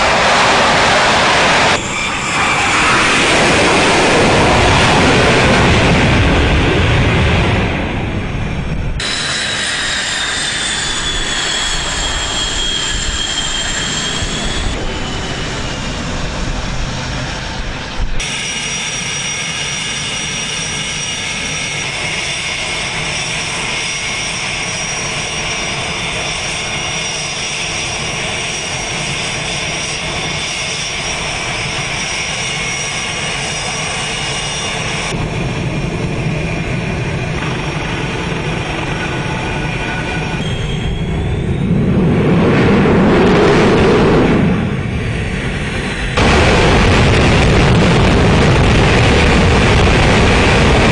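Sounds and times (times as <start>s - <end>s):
jet engines whining: 0.0s - 50.9s.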